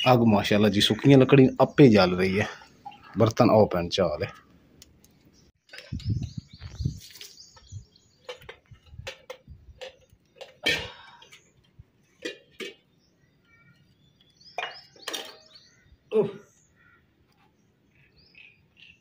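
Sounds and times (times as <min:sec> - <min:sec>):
metal pots and cups clinking: 0:08.2 - 0:12.9, 0:14.6 - 0:15.6.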